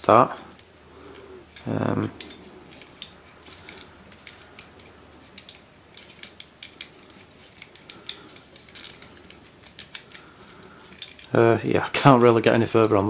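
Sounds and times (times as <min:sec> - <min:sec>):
plastic puzzle pieces clicking: 0:01.6 - 0:11.4.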